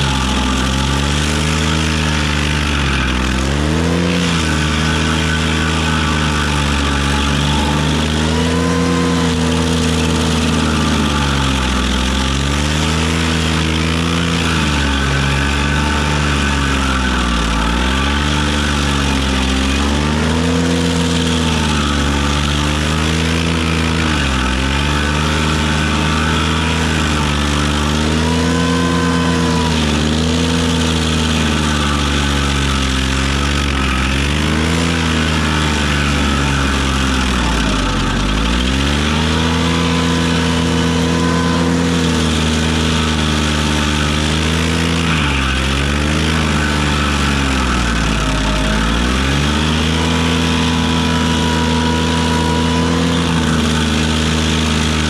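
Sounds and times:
tractor engine running hard: 0.0 - 55.0
higher whine: 34.7 - 54.9.

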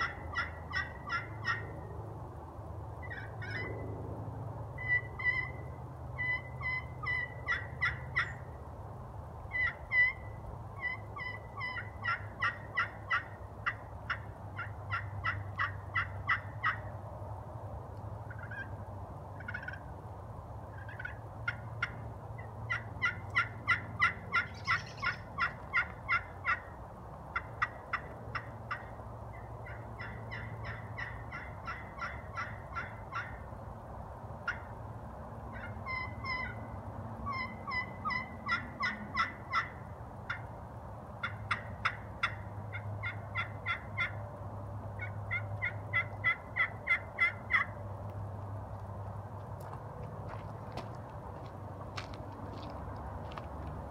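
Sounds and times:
turkey call yelping notes: 0.0 - 1.7, 3.0 - 3.7, 4.8 - 5.6, 6.2 - 8.4, 9.5 - 16.8, 20.8 - 26.7, 29.6 - 33.4, 35.5 - 36.7, 37.3 - 40.4, 41.2 - 44.2, 45.0 - 47.8.

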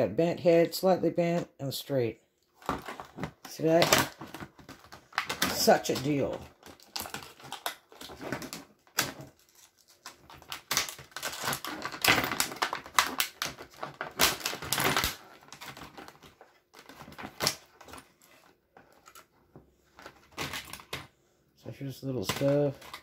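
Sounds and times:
plastic packaging crinkling: 2.6 - 19.3, 19.9 - 21.1.

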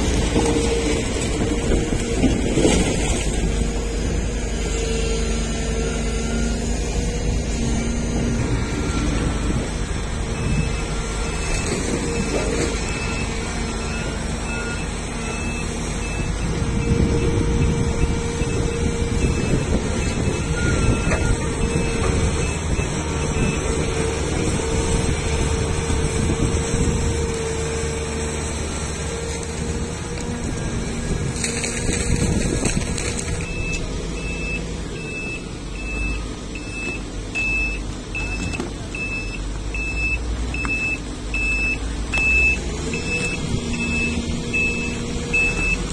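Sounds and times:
diesel engines running: 0.0 - 45.9
reversing alarm beeping: 10.3 - 23.9, 33.4 - 45.8.

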